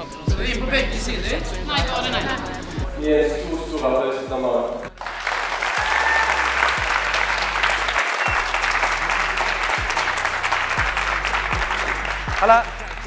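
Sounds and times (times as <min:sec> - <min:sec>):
music with low bass beat: 0:00.0 - 0:13.0
audience applauding: 0:05.0 - 0:13.0.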